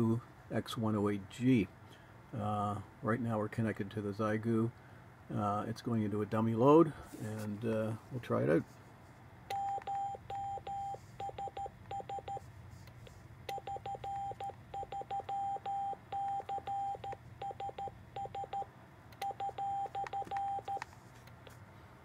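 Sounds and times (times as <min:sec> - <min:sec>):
morse code beeps: 0:09.5 - 0:12.4, 0:13.5 - 0:20.9.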